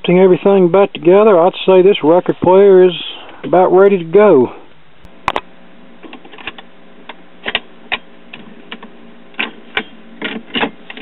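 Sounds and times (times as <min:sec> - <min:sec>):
turntable low hum: 0:00.0 - 0:11.0
record changer clicks and clunks: 0:05.2 - 0:11.0.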